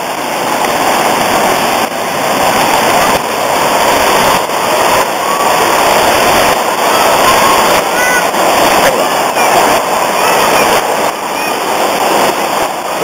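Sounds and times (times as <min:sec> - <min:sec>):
waterfall rushing over rocks: 0:00.0 - 0:13.0.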